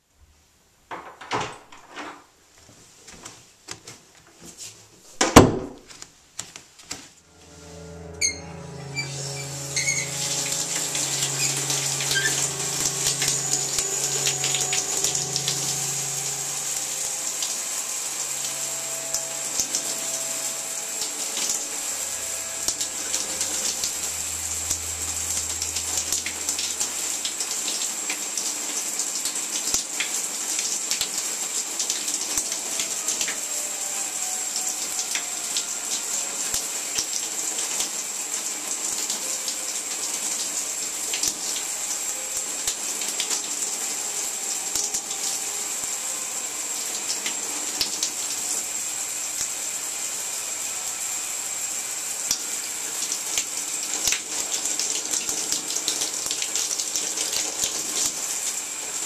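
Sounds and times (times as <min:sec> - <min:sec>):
low hum: 0:07.2 - 0:28.6
shower water spraying: 0:07.5 - 0:59.0.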